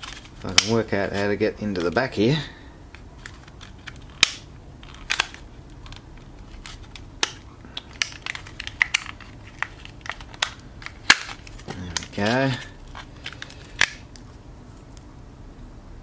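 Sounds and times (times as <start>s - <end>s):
plastic box clicks and snaps: 3.9s - 6.0s, 6.9s - 12.1s.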